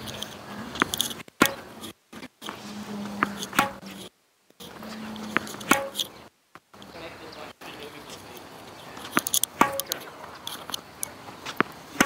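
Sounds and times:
faint steady hum: 0.0 - 12.0
racket hitting tennis ball: 0.8 - 1.8, 2.5 - 6.1, 9.0 - 10.7, 11.4 - 12.0
tennis ball bouncing on court: 3.1 - 4.0, 5.2 - 6.1, 9.0 - 10.0.

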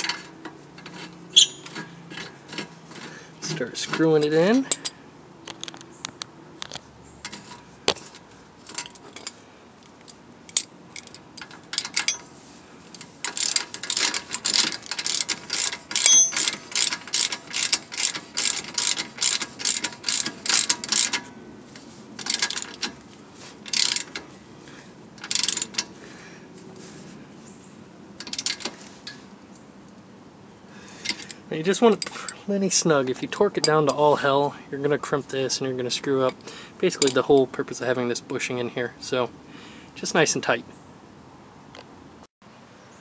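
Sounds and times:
socket ratchet clicking: 13.3 - 21.2, 25.2 - 25.8.

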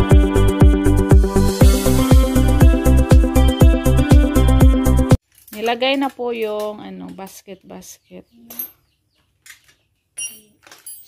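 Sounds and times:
electronic dance music: 0.0 - 5.2.

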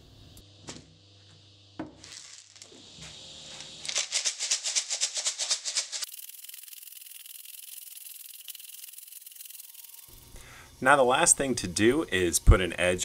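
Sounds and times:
stones rattling in a shaken pipe: 3.8 - 10.0.

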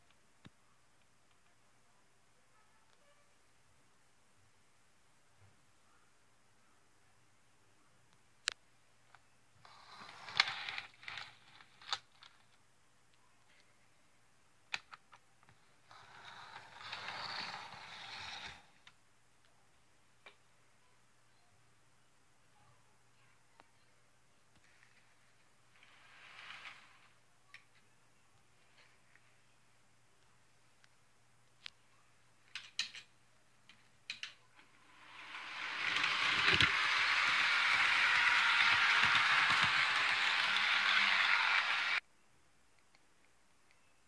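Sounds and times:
model train whirring rattle: 9.9 - 11.6, 15.9 - 18.6, 34.8 - 42.0.

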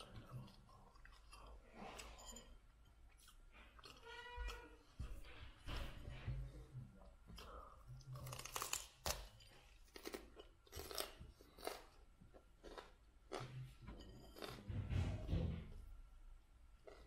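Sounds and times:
chewing raw broccoli: 0.0 - 2.4, 7.3 - 14.7, 16.8 - 17.0.

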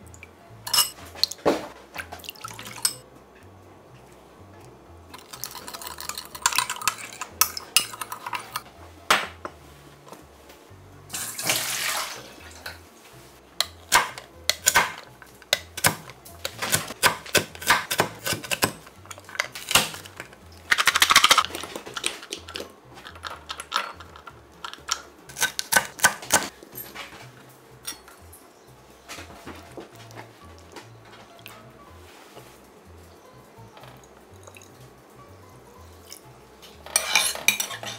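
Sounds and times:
spoon clinking in glass bowl: 0.7 - 1.0, 2.6 - 3.0, 5.2 - 8.6, 27.8 - 28.2, 36.9 - 37.9
liquid pouring into bowl: 2.2 - 3.0, 5.2 - 8.4, 11.2 - 12.5.

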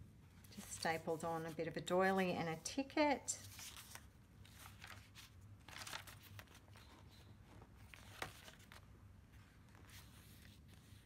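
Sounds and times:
paper pages rustling: 3.4 - 11.0.

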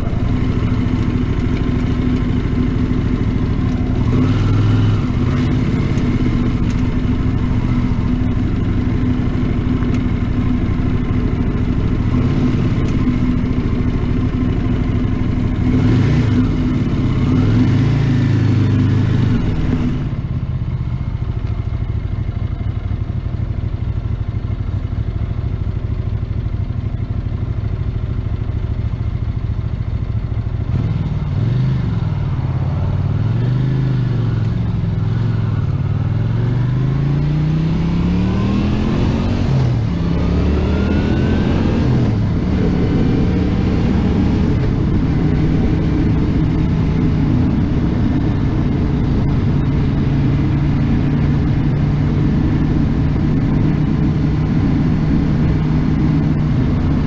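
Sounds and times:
motorcycle engine revving: 0.0 - 57.0
wind noise: 37.3 - 57.0.

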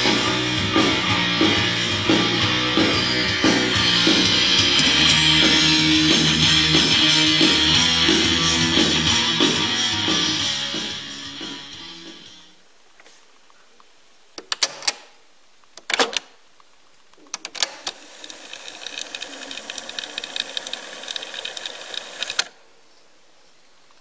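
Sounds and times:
cassette deck keys clicking: 17.4 - 22.5
tape mechanism whirring: 17.4 - 22.6.

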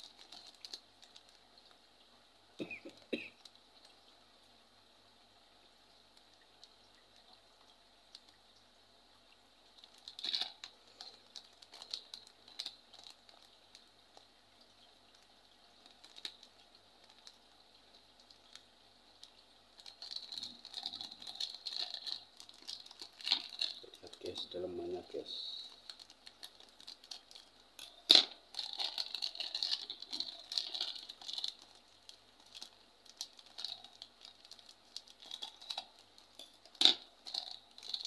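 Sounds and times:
plastic packet crinkling: 0.0 - 1.8, 9.8 - 38.0.

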